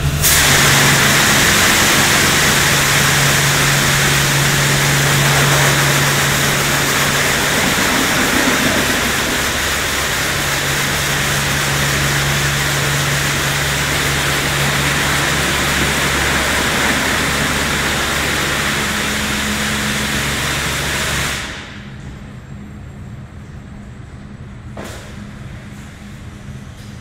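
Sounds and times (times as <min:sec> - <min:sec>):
high-pressure water spray hissing: 0:00.0 - 0:21.6
pump humming: 0:00.0 - 0:21.6.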